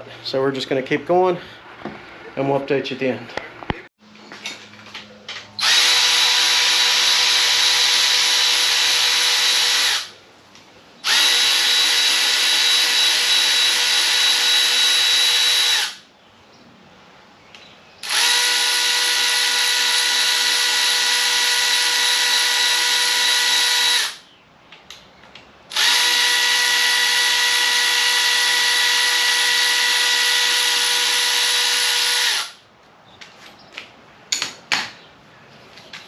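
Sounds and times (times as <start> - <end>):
power tool motor running: 5.6 - 10.1, 11.0 - 16.0, 18.0 - 24.2, 25.7 - 32.6.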